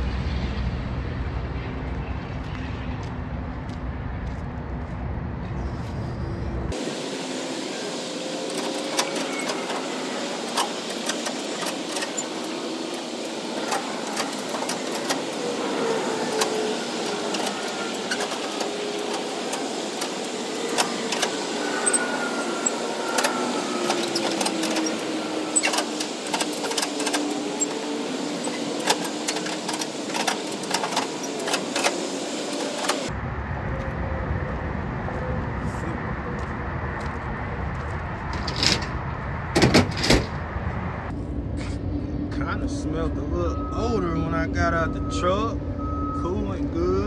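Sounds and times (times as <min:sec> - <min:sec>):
motor running: 0:07.4 - 0:33.1
sharp clicks and clanks: 0:08.5 - 0:15.6, 0:16.2 - 0:22.0, 0:22.6 - 0:33.1.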